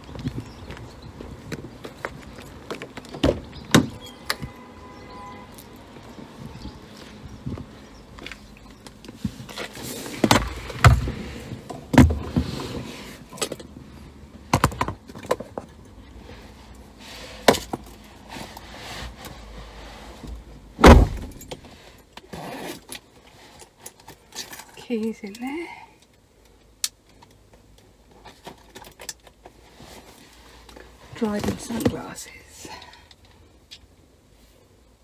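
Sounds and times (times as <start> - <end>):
knocks and rustling in a car: 0.1 - 4.5, 7.4 - 13.6, 14.4 - 15.8, 20.2 - 21.8
car door shutting: 20.8 - 21.4.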